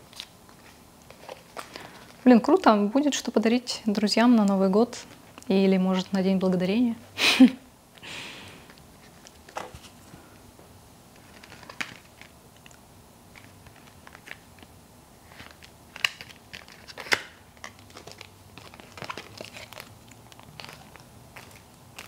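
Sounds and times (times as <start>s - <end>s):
packaging rustling and crinkling: 0.0s - 6.1s, 11.1s - 22.0s.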